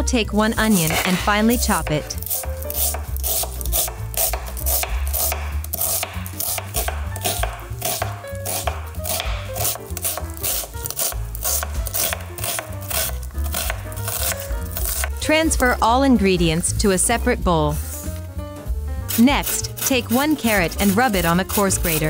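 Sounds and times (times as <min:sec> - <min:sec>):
background music: 0:00.0 - 0:22.0
knife strikes on cutting board: 0:02.4 - 0:14.4.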